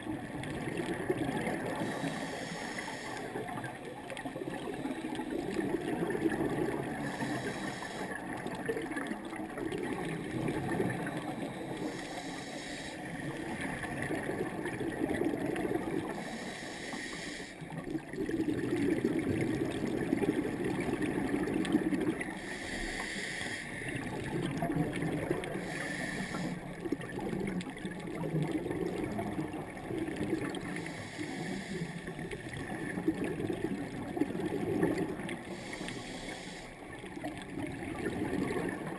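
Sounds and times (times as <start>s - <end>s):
exhaled bubbles gurgling: 0.0s - 38.9s
regulator hiss: 1.8s - 3.3s, 11.4s - 13.1s, 16.2s - 17.6s, 22.4s - 23.9s, 35.5s - 36.8s.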